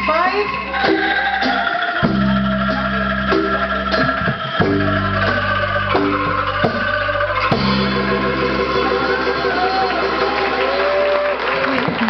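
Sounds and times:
drum kit: 0.0s - 11.0s
bamboo instruments playing: 0.0s - 11.4s
electric bass guitar: 2.0s - 11.1s.

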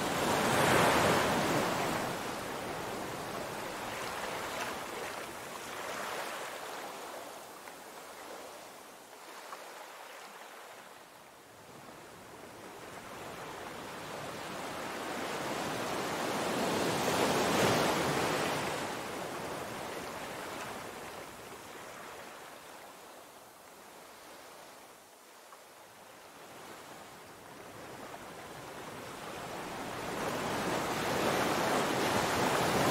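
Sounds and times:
surf washing against rocks: 30.3s - 32.9s.

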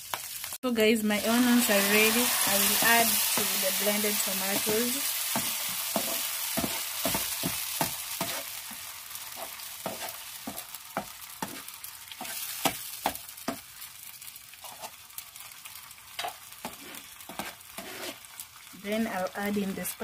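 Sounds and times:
paste sizzling in hot oil: 0.0s - 20.0s
metal spoon scraping pan: 16.2s - 18.2s.

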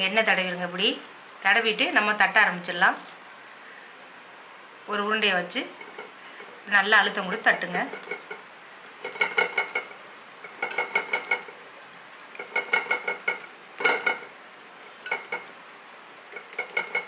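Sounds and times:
light clinking ring: 15.0s - 15.4s.

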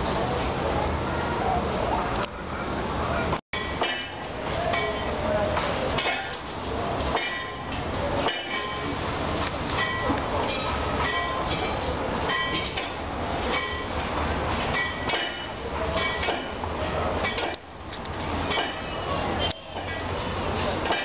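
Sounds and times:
metallic clanks: 3.6s - 9.0s, 9.7s - 21.0s.

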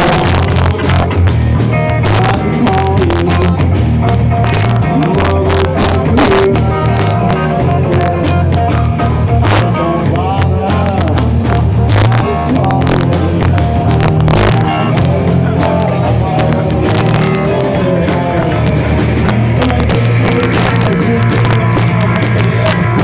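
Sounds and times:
bass guitar: 0.0s - 23.0s
drum hits: 0.0s - 23.0s
electric guitars: 0.0s - 23.0s.

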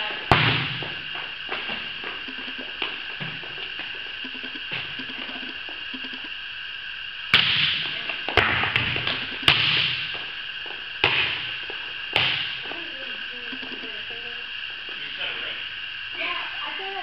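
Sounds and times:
steady high hum: 0.0s - 17.0s
volleyball smacks echoing: 0.3s - 1.0s, 7.3s - 10.2s, 11.0s - 11.4s.

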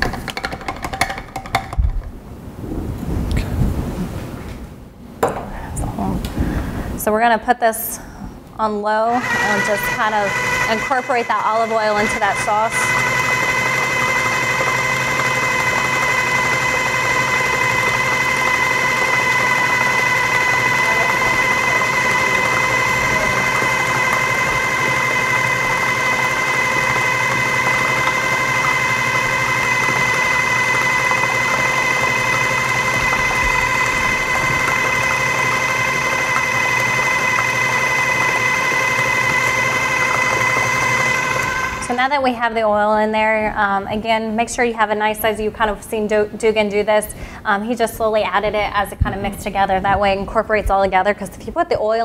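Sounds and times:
food processor motor whining: 9.1s - 42.3s.

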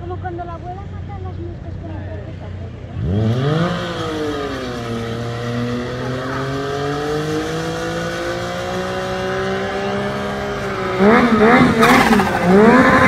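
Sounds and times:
motorcycle engine revving: 2.8s - 13.0s.

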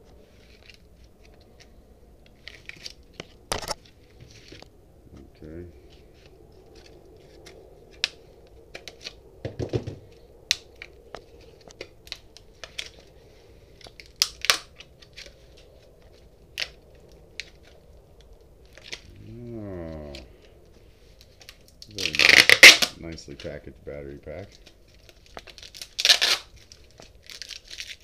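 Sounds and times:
tape and plastic being peeled off: 0.0s - 4.7s, 5.9s - 28.0s
sharp crackles and clicks: 5.4s - 9.3s, 10.0s - 28.0s.

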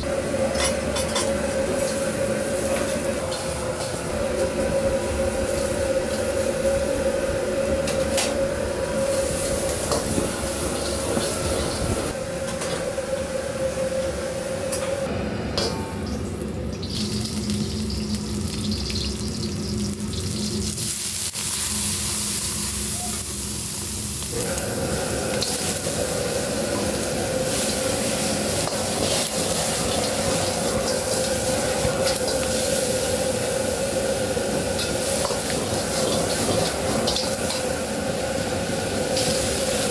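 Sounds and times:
gas burner roaring: 0.0s - 39.9s
food sizzling in a wok: 16.7s - 39.9s.

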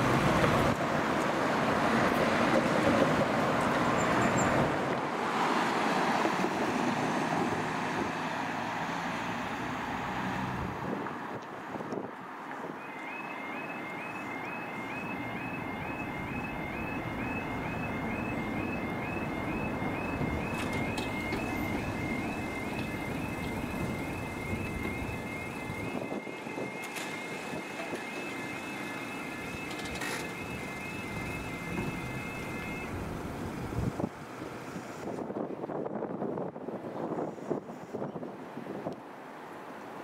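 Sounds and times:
level crossing warning alarm: 12.7s - 33.4s.

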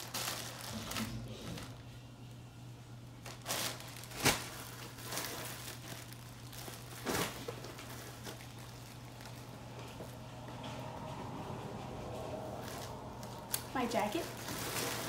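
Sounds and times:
plastic packaging crinkling: 0.0s - 1.9s, 3.2s - 9.7s, 12.6s - 15.0s
steady low hum: 0.0s - 15.0s.

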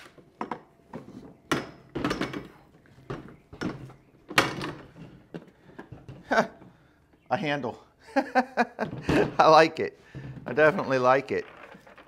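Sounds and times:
plastic knocks and clunks: 8.8s - 9.5s.

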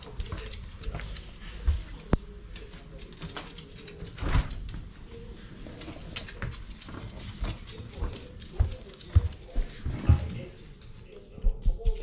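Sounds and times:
dog claws clicking on hard floor: 0.0s - 4.8s, 5.8s - 9.6s.

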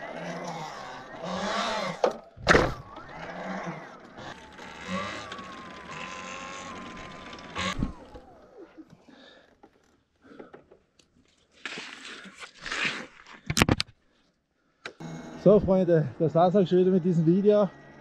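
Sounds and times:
electric motor whining: 0.0s - 8.8s.

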